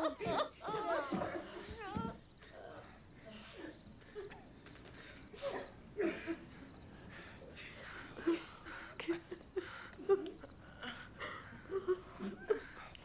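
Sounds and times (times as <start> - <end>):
person sobbing: 0.0 - 4.4, 7.6 - 12.9.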